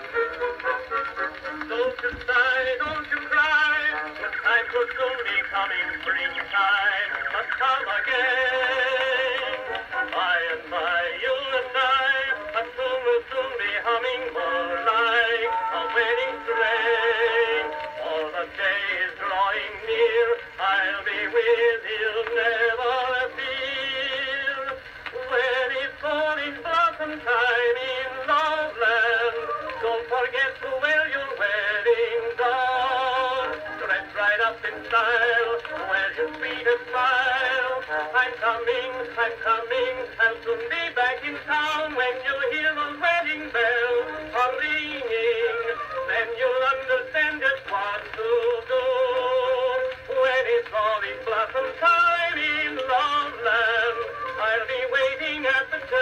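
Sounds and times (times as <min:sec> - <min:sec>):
man singing: 0:00.0 - 0:56.0
phonograph playing an old song: 0:00.0 - 0:56.0.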